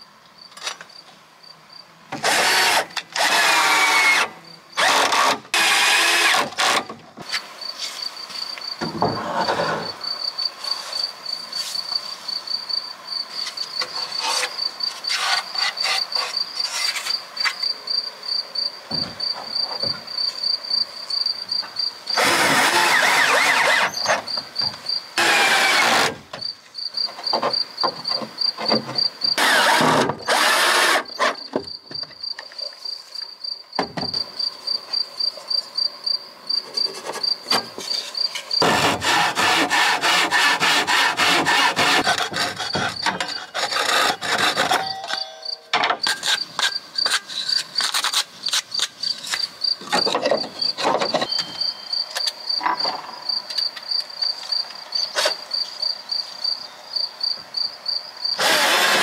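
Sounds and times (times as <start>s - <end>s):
insect chirping: 0.0s - 59.0s
power drill into wood: 2.2s - 6.9s, 22.2s - 24.2s, 25.2s - 26.2s, 29.4s - 31.4s, 58.4s - 59.0s
timber knocks and clatter: 8.8s - 9.9s, 49.8s - 51.7s.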